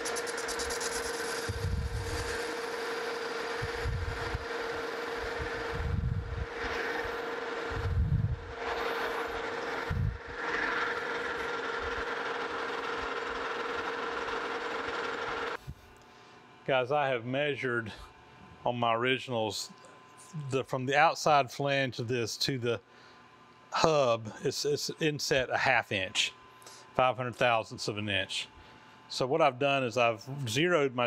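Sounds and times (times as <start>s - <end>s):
tool hissing cut: 0.0s - 7.8s, 8.6s - 15.6s
metal lathe whine: 0.0s - 15.6s.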